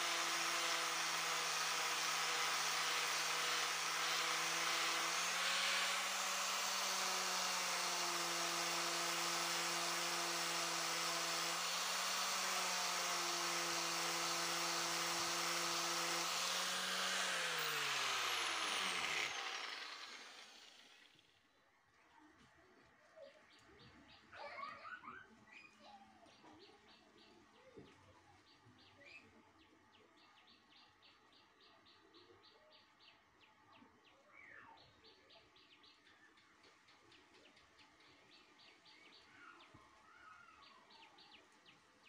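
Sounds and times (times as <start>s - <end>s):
angle grinder grinding steel: 0.0s - 21.1s
grinder winding down: 0.0s - 21.2s
faint bird chirps: 23.0s - 42.0s.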